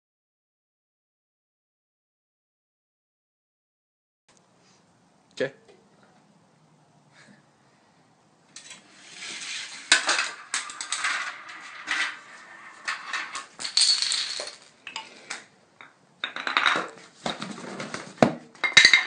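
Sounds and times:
marbles rattling through plastic run: 8.6 - 14.7
toy car rolling on plastic track: 8.6 - 14.7
dominoes and blocks toppling: 8.6 - 15.4.

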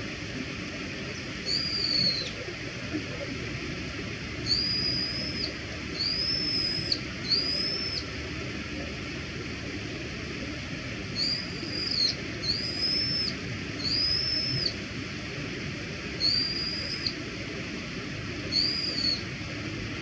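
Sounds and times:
bird whistled call: 1.5 - 2.4, 4.4 - 8.1, 11.2 - 14.8, 16.2 - 17.2, 18.5 - 19.2.

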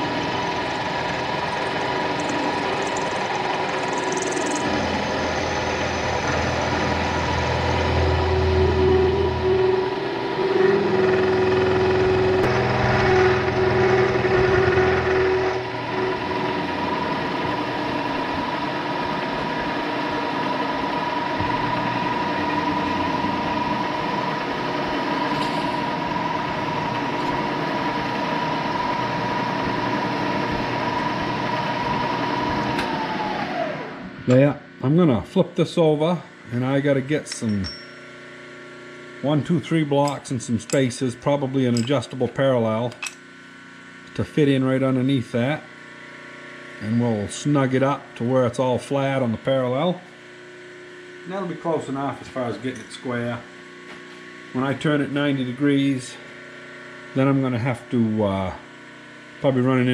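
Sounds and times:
deep hum: 0.0 - 18.5
milling machine whine: 0.0 - 35.2, 36.3 - 59.9.

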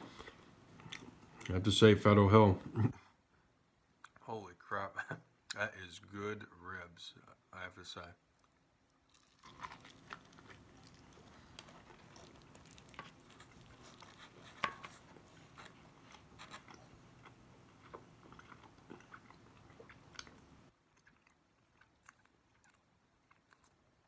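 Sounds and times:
person chewing: 0.1 - 1.5, 8.3 - 24.0.

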